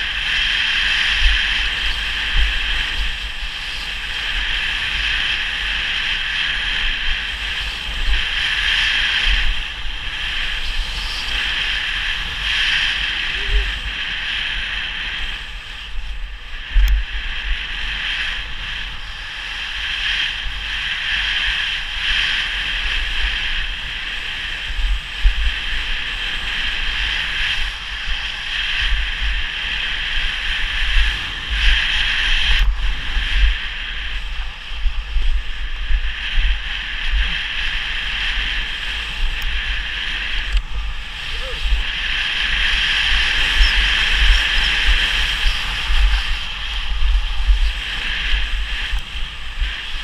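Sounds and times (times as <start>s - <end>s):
wind rushing over microphone: 0.0s - 50.0s
skis hissing through snow: 16.7s - 50.0s.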